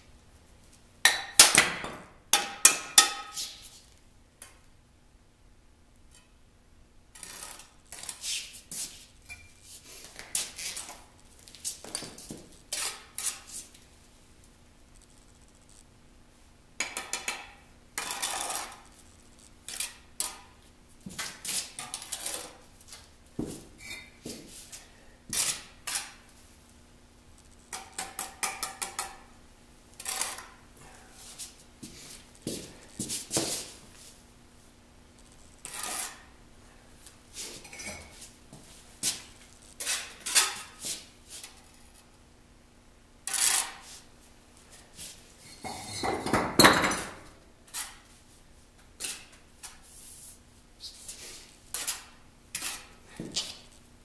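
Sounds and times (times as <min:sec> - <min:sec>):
trowel scraping mortar: 0:18.0 - 0:18.9, 0:30.0 - 0:30.5, 0:35.6 - 0:36.3.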